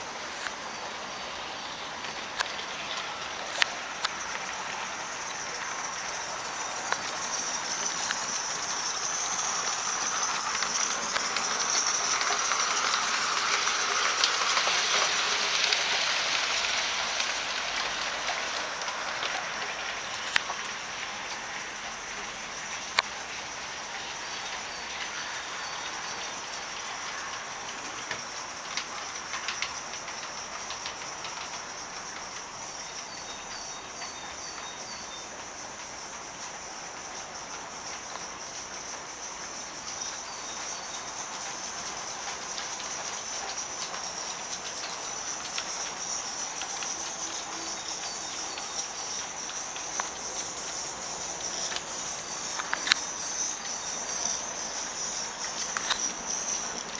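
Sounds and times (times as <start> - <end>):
steam hiss: 0.0 - 56.9
wheels clicking on track: 0.0 - 56.9
steam locomotive exhaust beats: 3.1 - 32.6.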